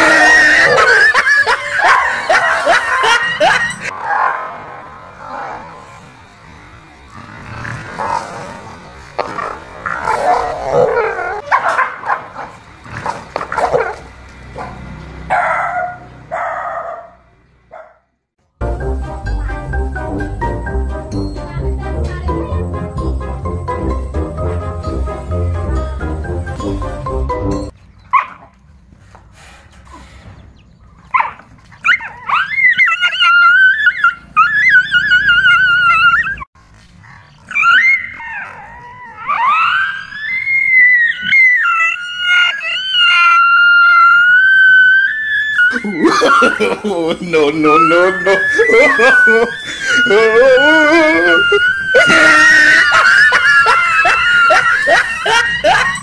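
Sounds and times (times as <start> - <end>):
dog barking and yipping: 0.0 - 4.5, 10.1 - 12.6, 13.4 - 18.0, 28.1 - 28.6, 31.1 - 36.4, 45.6 - 46.7, 47.9 - 50.1, 51.7 - 56.0
dog whining: 31.8 - 36.5, 37.5 - 46.6, 47.6 - 56.0.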